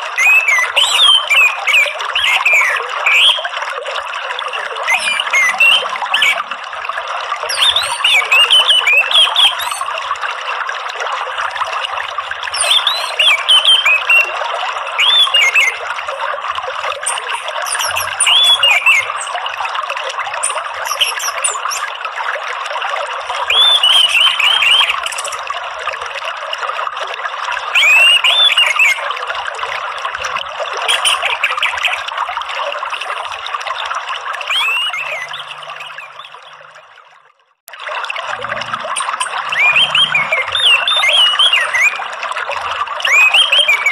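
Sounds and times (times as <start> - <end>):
water trickling: 0.0 - 43.9
thrush singing high whistles: 0.2 - 3.5, 4.9 - 6.4, 12.5 - 14.4, 15.0 - 15.8, 17.0 - 19.4, 34.5 - 36.3, 39.2 - 42.1, 43.1 - 43.9.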